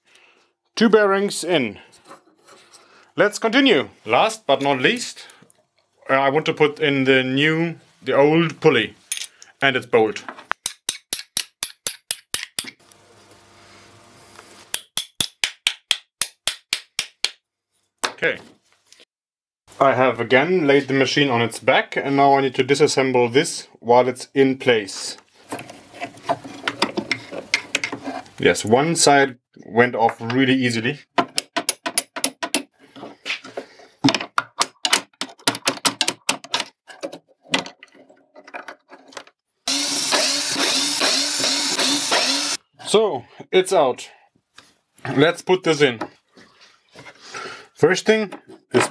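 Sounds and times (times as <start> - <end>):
cordless drill running: 39.7 - 42.6.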